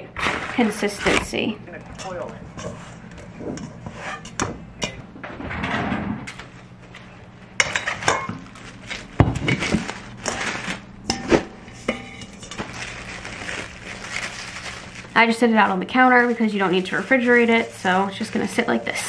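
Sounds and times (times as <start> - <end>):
metal bowl clanking: 0.6 - 5.1, 7.6 - 13.8
cling wrap crinkling: 6.4 - 11.0, 12.4 - 19.0
hands kneading dough in bowl: 7.7 - 19.0.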